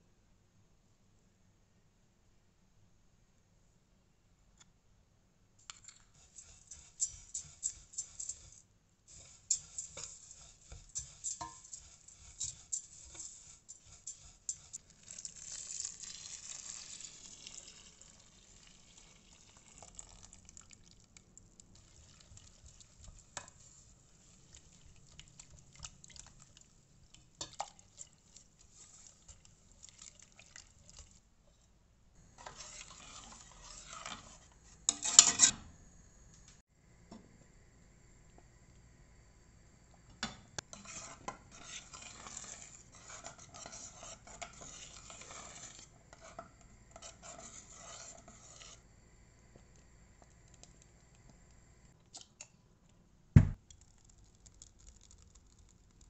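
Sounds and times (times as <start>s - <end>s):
spoon scraping metal pot: 5.7s - 17.8s, 27.4s - 31.2s, 32.3s - 35.6s, 40.6s - 48.8s
liquid pouring: 14.9s - 22.9s, 53.7s - 56.0s.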